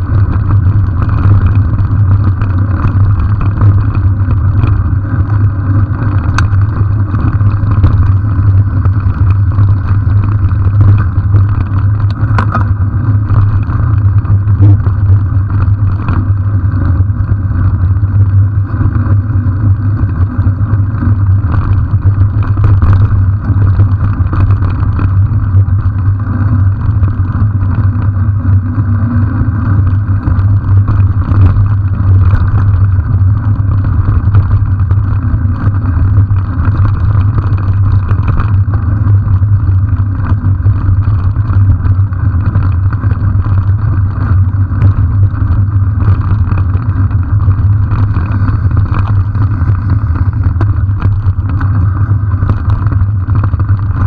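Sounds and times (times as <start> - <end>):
bicycle knocks and rattles: 0.0 - 54.0
wind on microphone: 0.0 - 54.0.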